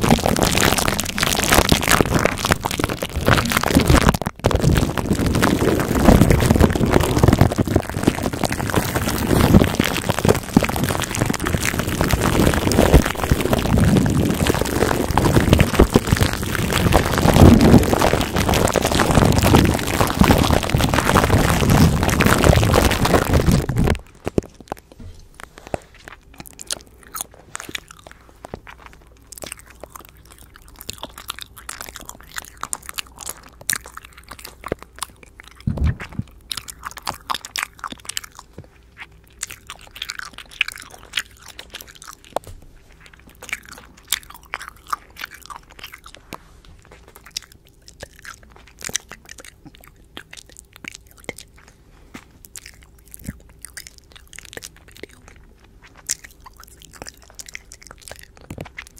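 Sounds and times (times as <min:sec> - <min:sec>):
thump on microphone: 0:35.7 - 0:36.2
wet mouth clicks and lip smacks: 0:47.0 - 0:51.7, 0:52.4 - 0:58.9.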